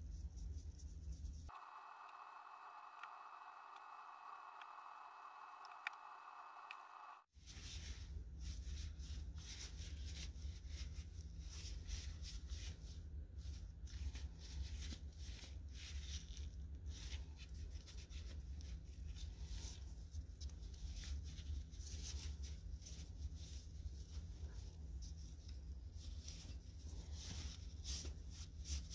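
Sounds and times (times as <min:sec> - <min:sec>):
low hum: 0:01.5 - 0:07.3.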